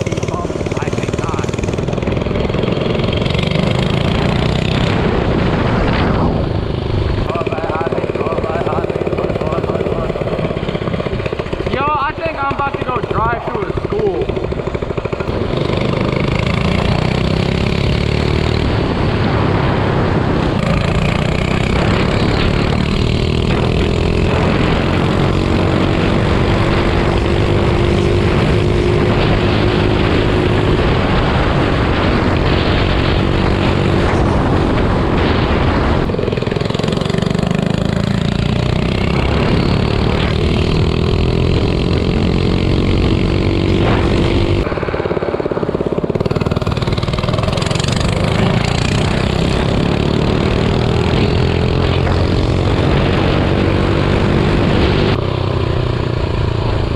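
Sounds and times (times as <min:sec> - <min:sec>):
minibike engine running: 0:00.0 - 0:56.9.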